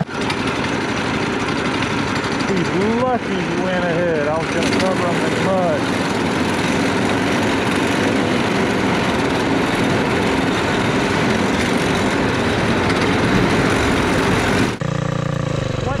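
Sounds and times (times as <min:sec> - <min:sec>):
go-kart engines droning: 0:00.0 - 0:16.0.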